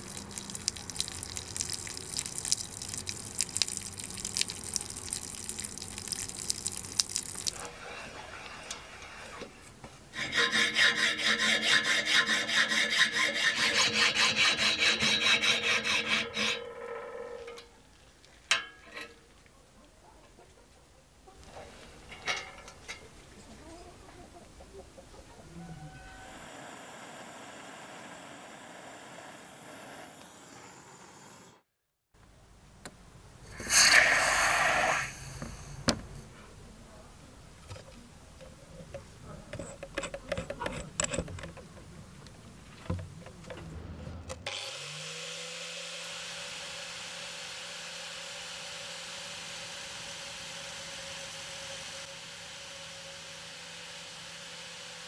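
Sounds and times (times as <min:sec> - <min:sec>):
sanding disc against brass rod: 0:10.2 - 0:16.6
loud short rasping burst: 0:10.2 - 0:16.7, 0:33.5 - 0:35.8.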